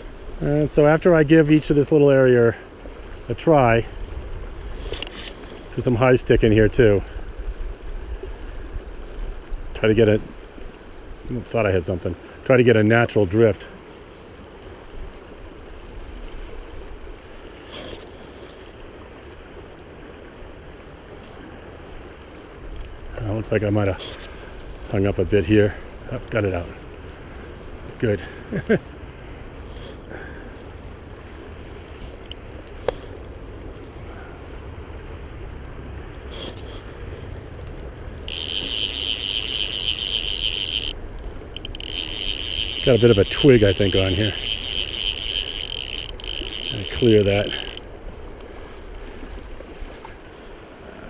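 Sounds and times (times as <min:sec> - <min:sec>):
rushing river: 0:00.0 - 0:51.0
fishing reel ratchet buzz: 0:38.2 - 0:47.8.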